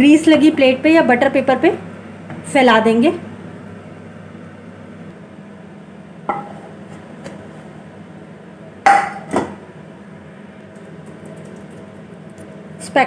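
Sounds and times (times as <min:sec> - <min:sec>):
spoon and pan knocking on plate: 0:08.9 - 0:09.6.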